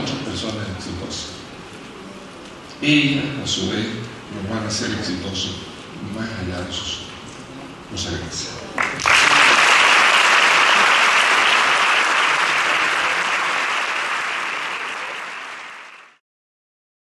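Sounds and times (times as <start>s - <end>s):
audience applauding: 8.8s - 16.2s.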